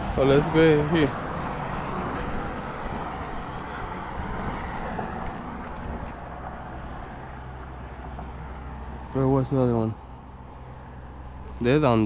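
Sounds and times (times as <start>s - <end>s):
road traffic rushing: 0.0s - 12.0s.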